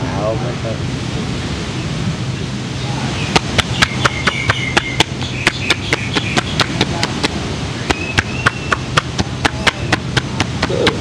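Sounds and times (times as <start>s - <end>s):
hands slapping on bare back: 3.4s - 7.4s.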